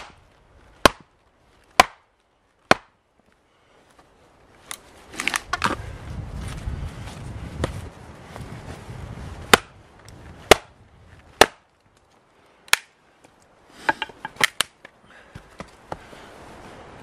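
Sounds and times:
hatchet chopping log: 0.0s - 0.2s, 0.8s - 1.1s, 1.7s - 3.0s, 9.5s - 9.8s, 10.4s - 10.8s, 11.4s - 11.7s, 12.7s - 12.9s, 13.8s - 14.9s
split wood pieces knocking: 13.8s - 14.9s.

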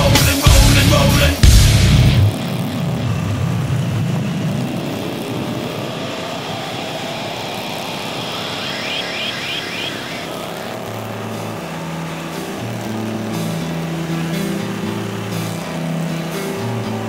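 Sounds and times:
wind rush over microphone: 2.3s - 11.3s.

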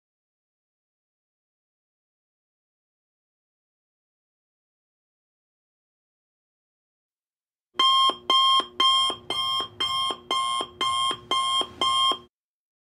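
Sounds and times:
timer alarm ringing: 7.8s - 12.3s.

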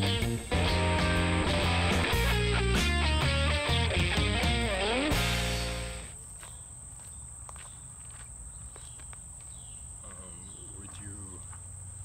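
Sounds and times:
crickets chirping: 6.0s - 12.0s
footsteps on gravel path: 6.1s - 11.7s.

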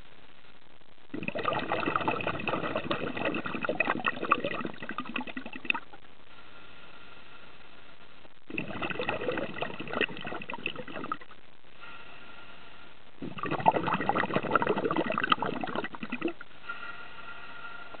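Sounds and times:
faint steady hiss: 0.0s - 18.0s
diver's exhaled bubbles: 1.1s - 6.0s, 8.5s - 11.3s, 13.2s - 16.4s.

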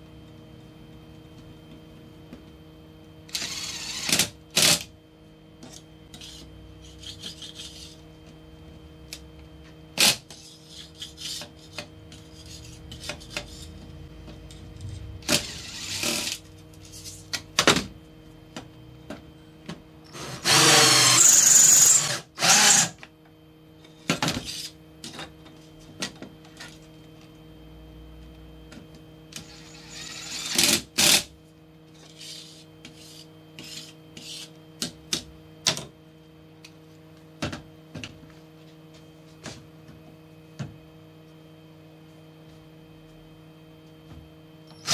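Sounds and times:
cordless drill drilling into steel: 20.2s - 23.0s, 29.4s - 31.2s.

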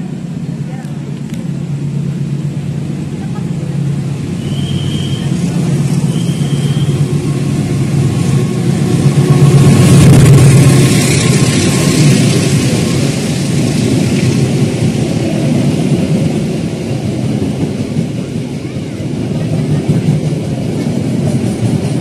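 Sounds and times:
diesel locomotive engine drone: 0.0s - 22.0s
train wheels rattling on rail: 0.0s - 22.0s.

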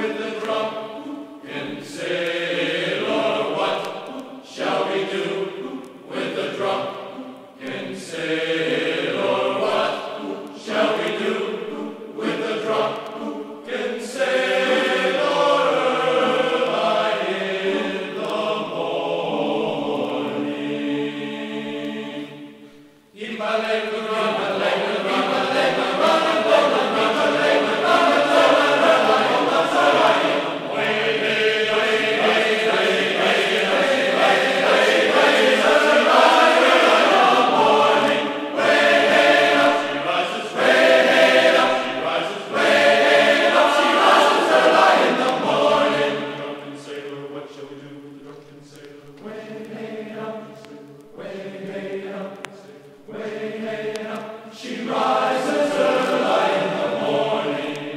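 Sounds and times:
choir singing: 0.0s - 57.9s.

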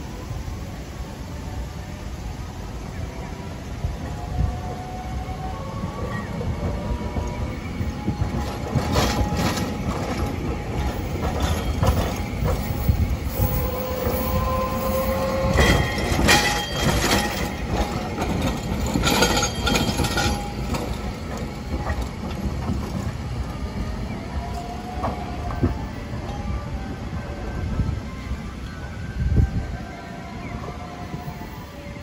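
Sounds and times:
faint tram whine: 0.0s - 32.0s
tram wheels rumbling on rail: 0.0s - 32.0s
wheels clacking over track joints: 6.2s - 26.4s.

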